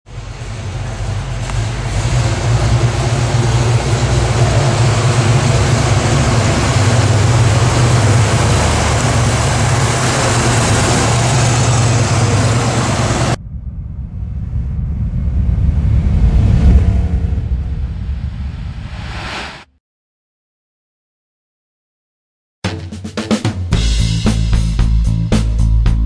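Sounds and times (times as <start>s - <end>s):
car engine driving past: 0.2s - 19.7s.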